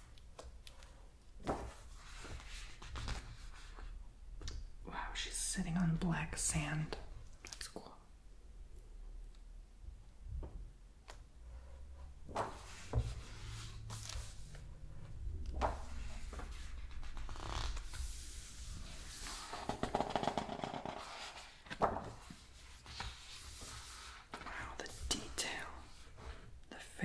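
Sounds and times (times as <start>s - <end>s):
book pages swishing: 12.3s - 14.8s, 15.5s - 19.9s, 21.0s - 25.3s.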